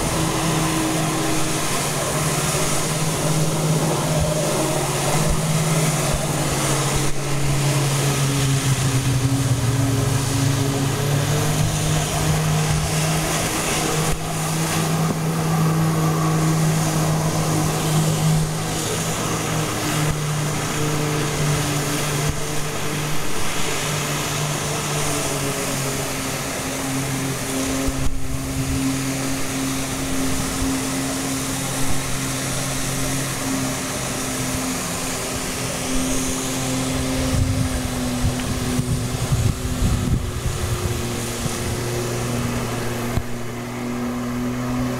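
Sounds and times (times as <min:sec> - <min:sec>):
pump engine running: 0:00.0 - 0:44.9
water jets hissing: 0:00.0 - 0:44.9.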